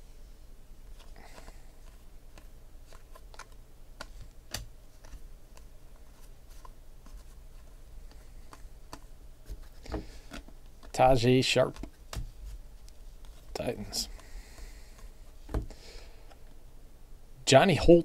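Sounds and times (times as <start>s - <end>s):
faint low hum: 0.0s - 18.0s
cards flipped by hand: 0.9s - 11.0s.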